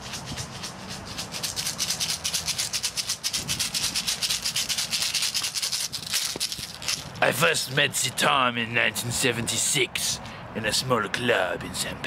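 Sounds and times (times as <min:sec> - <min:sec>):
maraca shaken fast: 0:00.0 - 0:07.3.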